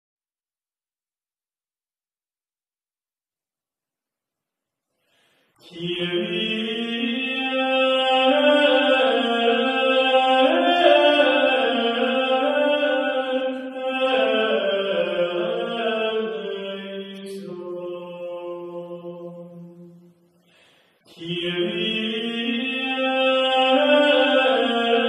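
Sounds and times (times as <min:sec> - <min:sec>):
slow vocal chant: 0:05.4 - 0:25.0.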